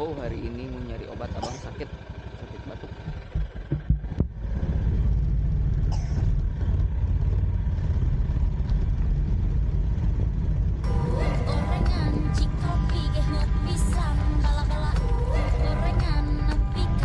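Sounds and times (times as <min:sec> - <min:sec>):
motor scooter riding off: 0:01.2 - 0:17.0
low thumps: 0:03.0 - 0:17.0
wind on microphone: 0:03.9 - 0:13.9.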